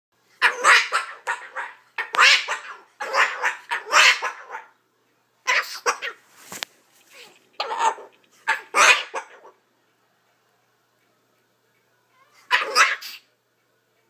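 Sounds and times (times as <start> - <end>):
cockatoo squawking: 0.4 - 4.8, 5.4 - 6.3, 7.1 - 9.6, 12.2 - 13.3.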